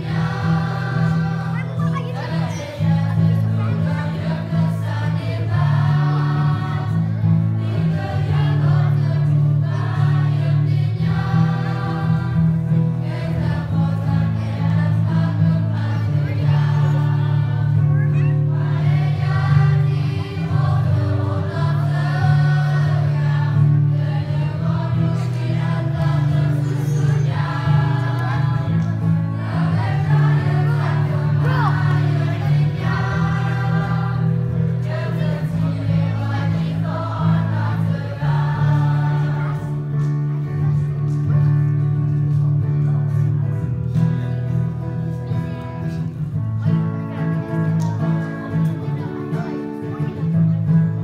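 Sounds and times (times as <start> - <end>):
choir singing: 0.0 - 39.9.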